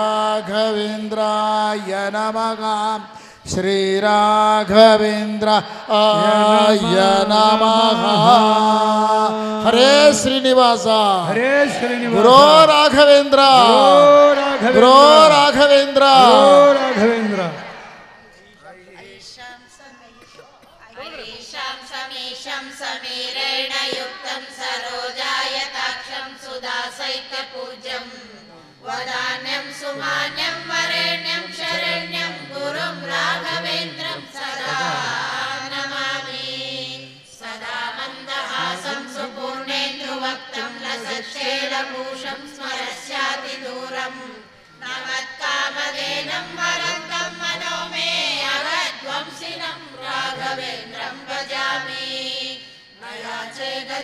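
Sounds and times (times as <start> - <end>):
voices chanting a hymn: 0.0 - 19.9, 20.9 - 54.0.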